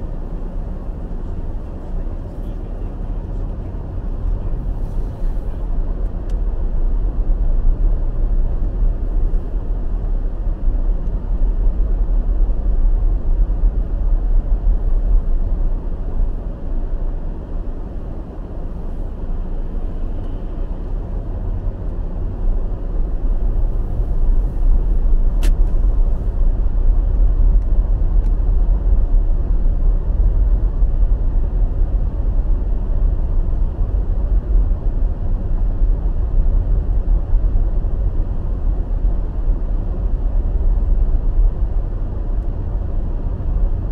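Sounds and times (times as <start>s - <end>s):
car engine and tyres rumbling: 0.0s - 43.9s
sharp click: 25.4s - 25.8s.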